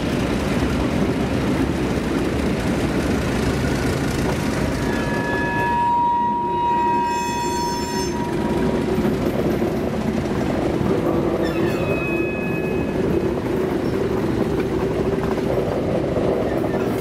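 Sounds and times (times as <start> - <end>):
high wheel squeal: 4.8 - 8.7, 11.4 - 13.2.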